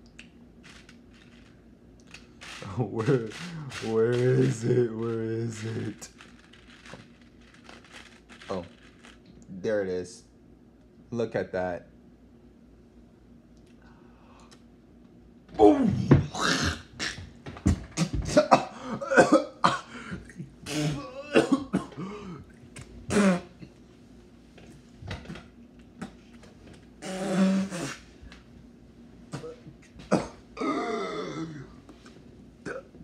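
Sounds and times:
man retching groan: 15.6 - 17.2, 18.0 - 22.4, 23.1 - 23.6, 27.0 - 28.0, 29.4 - 31.8
man coughing and gagging: 18.0 - 22.4, 29.4 - 31.8.

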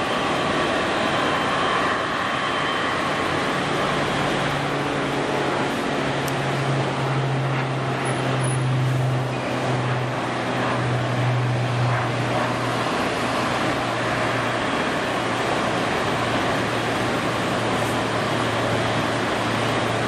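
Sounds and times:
jet engine noise: 0.0 - 20.0.

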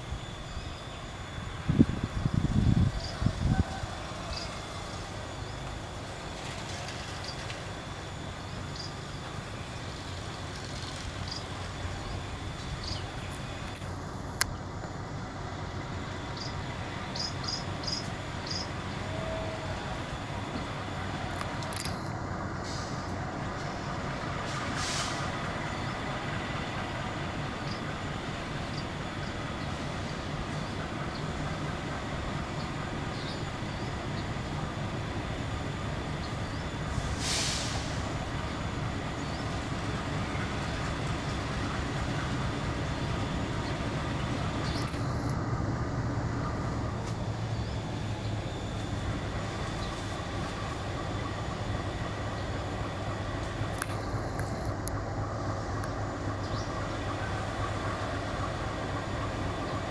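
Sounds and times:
locomotive engine rumble: 0.0 - 59.9
short hisses: 22.6 - 23.1, 24.5 - 25.3, 37.0 - 38.2.

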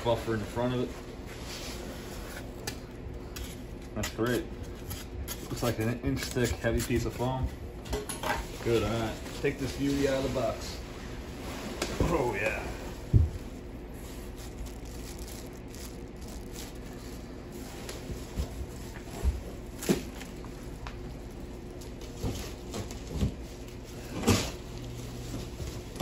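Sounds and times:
steady low hum: 0.0 - 26.0
plastic bag rustling: 8.4 - 26.0.

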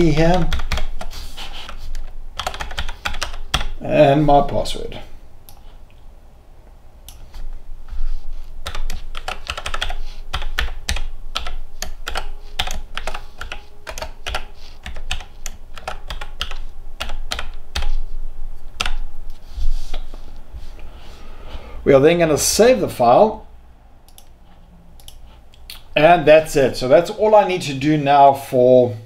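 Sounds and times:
keyboard typing: 0.0 - 3.8, 8.3 - 18.2, 18.8 - 20.1.

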